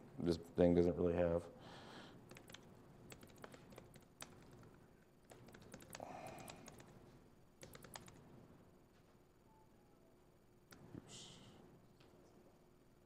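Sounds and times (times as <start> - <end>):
faint laptop keystrokes: 2.3 - 8.2.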